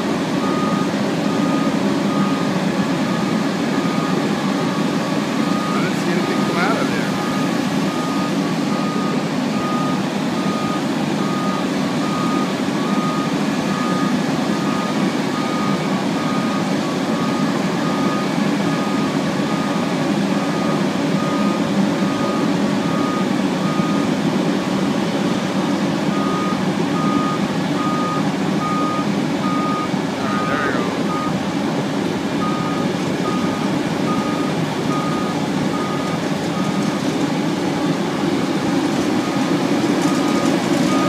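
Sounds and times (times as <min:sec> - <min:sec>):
diesel engines running: 0:00.0 - 0:41.0
backup alarm beeping: 0:26.1 - 0:31.4.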